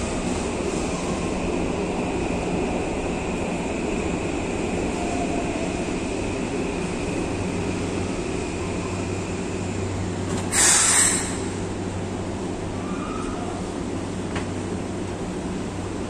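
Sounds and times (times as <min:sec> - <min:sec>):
electric train humming: 0:00.0 - 0:16.0
burst of air hiss: 0:10.5 - 0:11.5.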